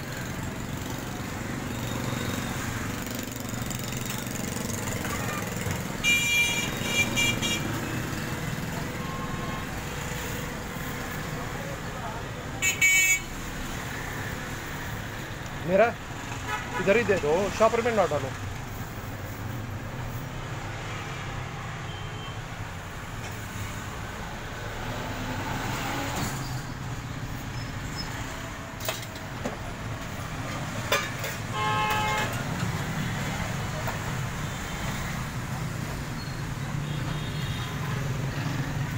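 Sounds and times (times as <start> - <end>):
street traffic: 0.0 - 38.9
vehicle horn toot: 6.0 - 7.7, 12.6 - 13.3, 31.5 - 32.4.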